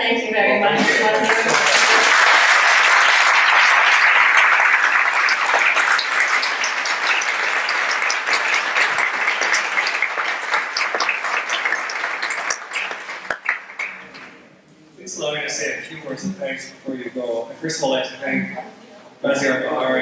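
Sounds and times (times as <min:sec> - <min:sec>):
audience applauding: 0:00.9 - 0:14.4.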